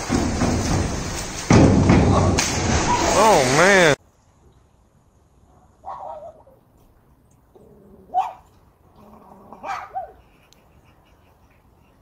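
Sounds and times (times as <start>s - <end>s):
raven imitating dog barks: 9.5s - 10.2s.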